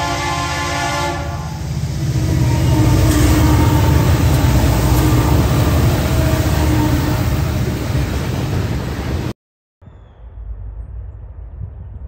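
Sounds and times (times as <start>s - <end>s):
locomotive horn: 0.0s - 7.6s
diesel locomotive engines passing: 0.0s - 9.4s.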